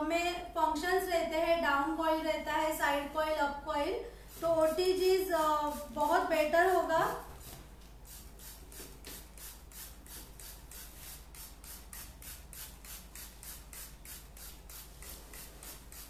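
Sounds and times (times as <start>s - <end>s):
spray bottle hissing: 4.3s - 16.0s.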